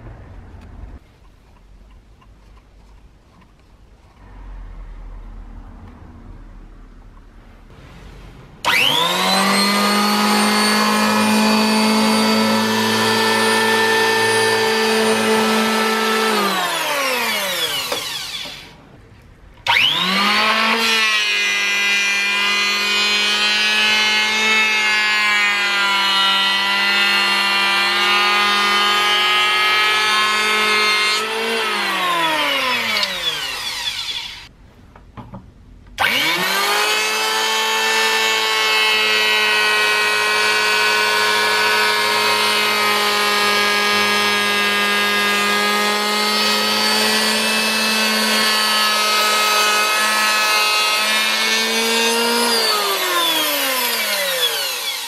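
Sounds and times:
electric hand planer whining: 0:08.6 - 0:18.8, 0:19.6 - 0:34.5, 0:36.0 - 0:55.0.

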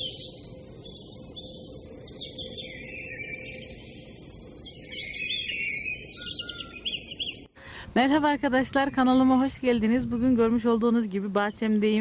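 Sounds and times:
small birds chirping: 0:00.0 - 0:07.6.

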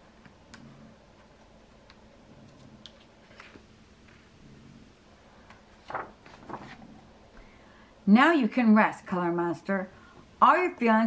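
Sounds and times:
book handling clicks and rustles: 0:00.2 - 0:04.2, 0:05.5 - 0:07.0.

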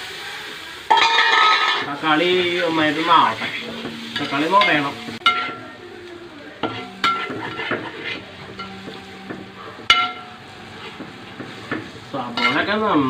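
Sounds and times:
low sizzle: 0:00.0 - 0:13.0
metal spatula scraping pot: 0:00.9 - 0:01.9, 0:06.6 - 0:09.0, 0:12.4 - 0:12.7
spatula clanging on pot: 0:00.9 - 0:02.5, 0:03.5 - 0:05.8, 0:06.6 - 0:12.8.

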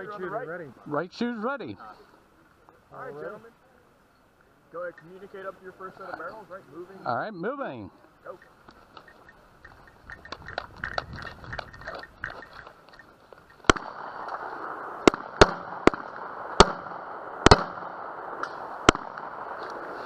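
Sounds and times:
rustling of movement: 0:07.9 - 0:15.0, 0:18.2 - 0:20.0
gunshots: 0:13.6 - 0:20.0.

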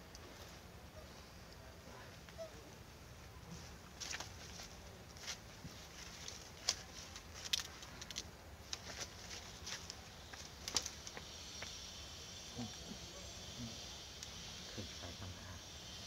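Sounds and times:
small rustles: 0:00.0 - 0:11.8
high insect buzz: 0:09.8 - 0:16.0.

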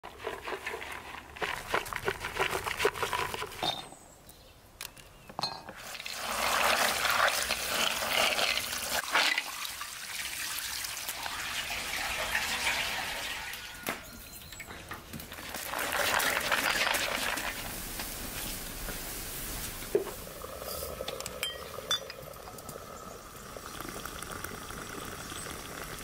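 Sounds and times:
water pouring into metal pan: 0:05.8 - 0:13.8, 0:15.3 - 0:18.2, 0:20.1 - 0:26.0.

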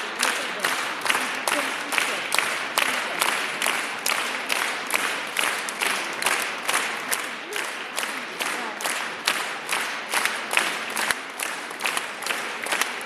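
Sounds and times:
audience clapping in unison: 0:00.0 - 0:13.0
scattered clapping: 0:00.0 - 0:13.0.

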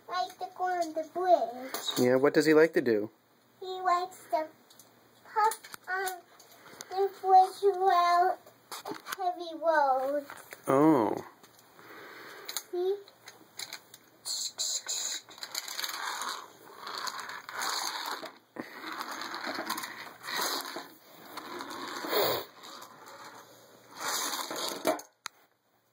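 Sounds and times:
plastic toy trains scraping: 0:13.6 - 0:25.1.

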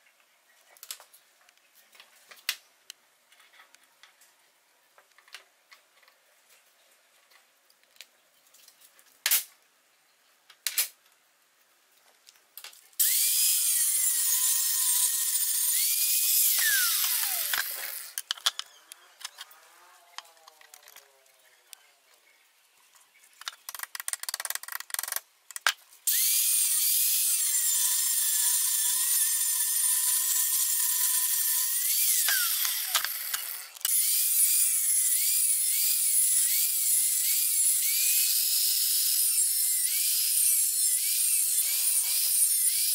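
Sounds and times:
angle grinder cutting steel: 0:13.0 - 0:21.1, 0:26.1 - 0:42.9.

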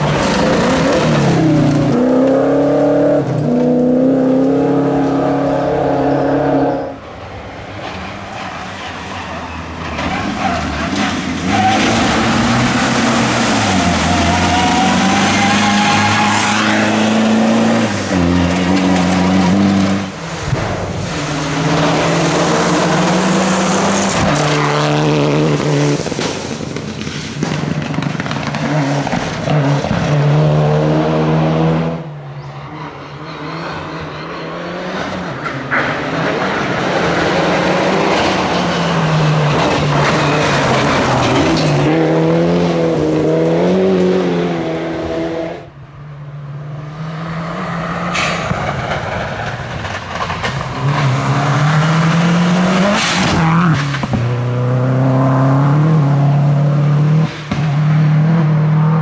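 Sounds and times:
rally car engines revving: 0:00.0 - 0:45.8, 0:46.4 - 0:59.0
tyres skidding on gravel: 0:07.7 - 0:30.1, 0:35.0 - 0:43.5, 0:48.0 - 0:54.7.

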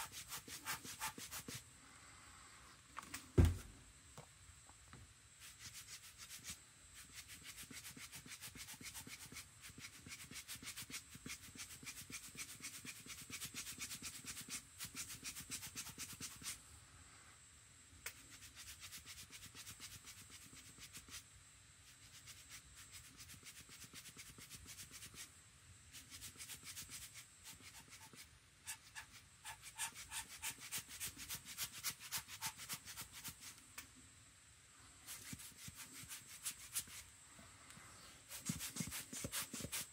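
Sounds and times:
tool scratching on paper: 0:00.0 - 0:01.6, 0:05.4 - 0:16.6, 0:25.9 - 0:33.6, 0:35.1 - 0:37.0, 0:38.3 - 0:39.9.

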